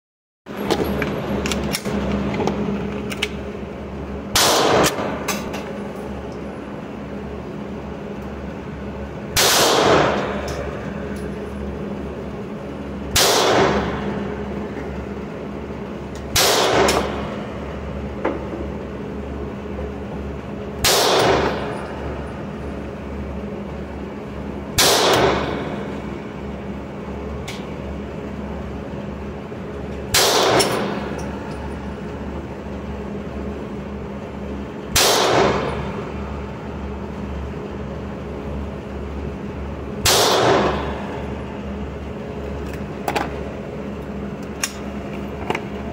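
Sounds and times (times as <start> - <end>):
steady low hum: 0.5 - 45.9
pistol shots echoing: 4.4 - 5.1, 9.4 - 10.3, 13.2 - 14.0, 20.8 - 21.7, 24.8 - 25.6, 30.1 - 31.0, 35.0 - 35.7, 40.0 - 40.8.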